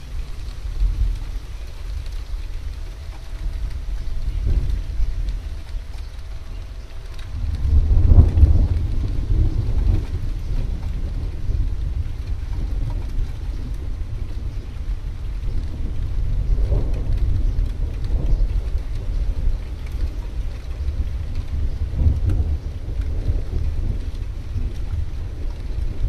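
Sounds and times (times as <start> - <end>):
distant thunder rumble: 0.0 - 26.0
light rain: 0.0 - 26.0
wind: 0.0 - 26.0.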